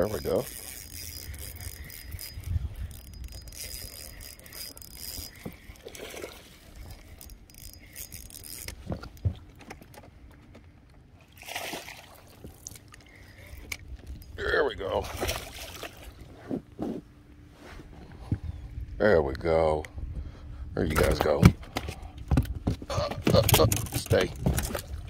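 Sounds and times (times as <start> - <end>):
fishing reel being cranked: 0.0 - 9.1
light water splashing: 11.3 - 13.0, 15.0 - 16.2.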